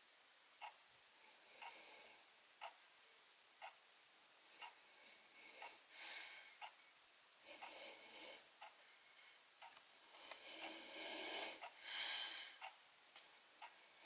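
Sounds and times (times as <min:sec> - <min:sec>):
nasal breathing: 0:04.6 - 0:06.8, 0:07.4 - 0:09.4, 0:10.0 - 0:12.8.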